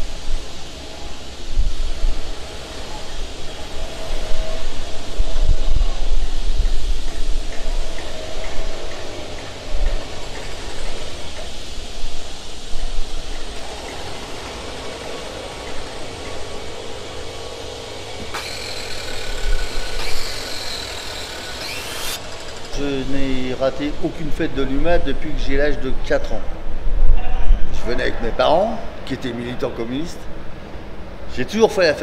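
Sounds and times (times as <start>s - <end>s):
electric hand planer whining: 13.5s - 23.1s.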